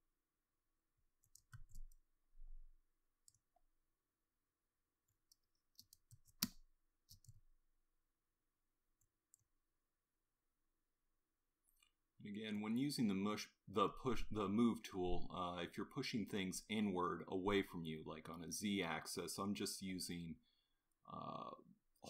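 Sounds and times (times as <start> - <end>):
computer input clicks and taps: 1.2 - 2.0.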